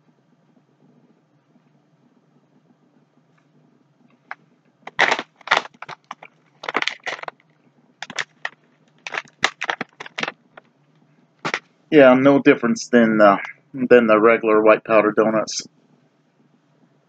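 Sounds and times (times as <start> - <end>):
snack bag crinkling: 4.9 - 7.4, 8.0 - 10.4.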